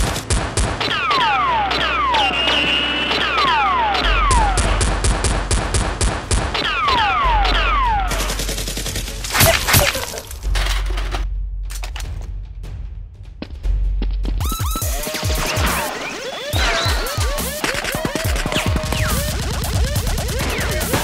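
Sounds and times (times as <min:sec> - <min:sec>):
falling whistles: 0:00.9 - 0:04.6, 0:15.6 - 0:17.6.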